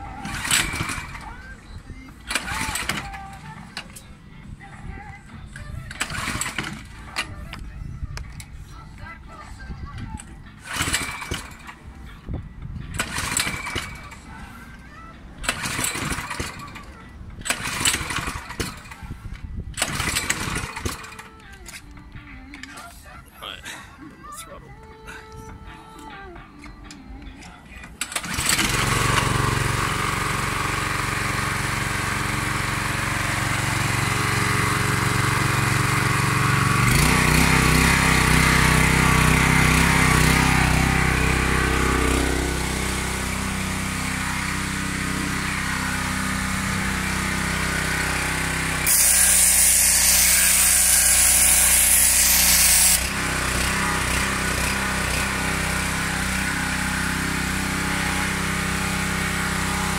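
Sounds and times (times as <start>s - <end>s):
pressure washer engine running: 0.0s - 4.1s, 5.9s - 7.4s, 10.6s - 11.9s, 12.9s - 14.8s, 15.4s - 19.2s, 19.8s - 21.4s, 27.9s - 59.9s
high-pressure water jet hissing: 48.8s - 53.0s.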